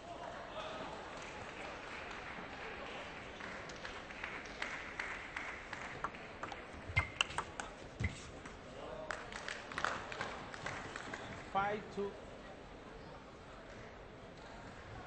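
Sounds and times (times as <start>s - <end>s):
table tennis ball clicking: 6.4s - 7.6s.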